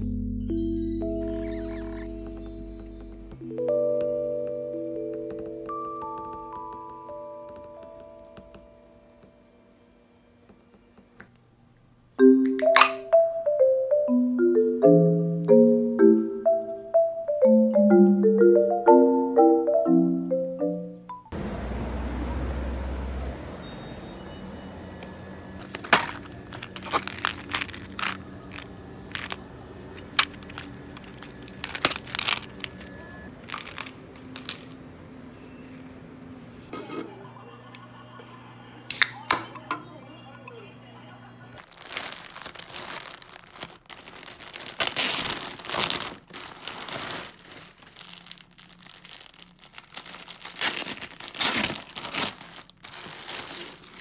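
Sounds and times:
packages clicking and knocking: 0:25.6 - 0:34.8, 0:41.6 - 0:54.0
plastic bags crinkling: 0:25.6 - 0:34.8, 0:41.6 - 0:54.0.

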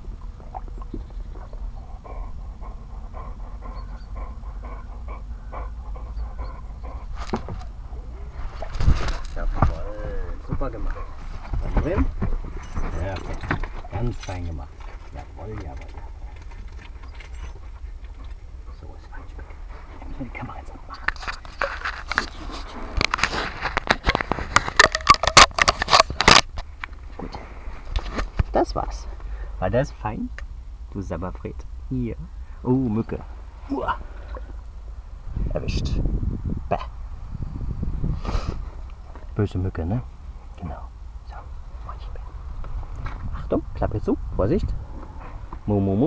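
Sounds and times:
dog panting: 0:01.3 - 0:08.5, 0:10.7 - 0:11.8, 0:13.8 - 0:21.2
handling clicks and scrapes on microphone: 0:07.0 - 0:07.7, 0:08.3 - 0:09.8, 0:20.9 - 0:28.6.

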